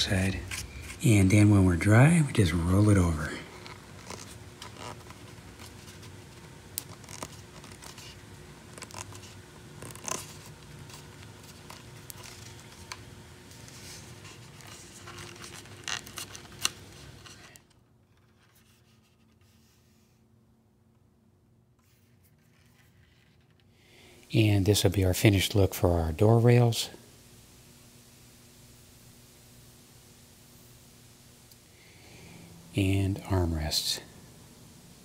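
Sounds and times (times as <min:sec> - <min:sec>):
faint steady hum: 0:00.0 - 0:35.0.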